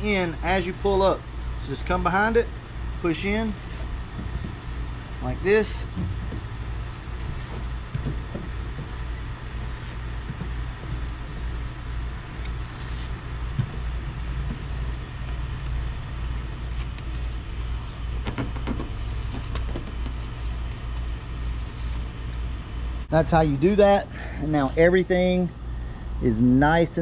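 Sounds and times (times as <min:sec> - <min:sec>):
faint high whine: 0:00.0 - 0:27.0
liner peeled off tape: 0:07.1 - 0:07.8, 0:09.4 - 0:10.1, 0:12.4 - 0:13.6, 0:16.6 - 0:18.2, 0:18.8 - 0:22.0.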